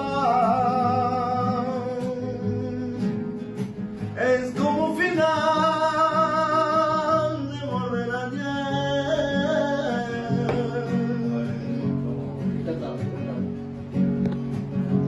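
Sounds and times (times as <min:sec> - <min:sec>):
flamenco-style singing: 0:00.0 - 0:12.6
acoustic guitars strumming: 0:00.0 - 0:15.0.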